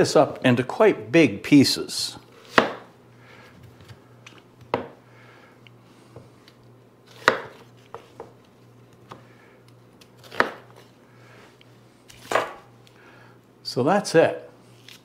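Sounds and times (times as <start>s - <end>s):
knife cutting onion: 2.4s - 2.9s, 7.0s - 8.0s, 10.0s - 10.8s, 12.1s - 12.7s.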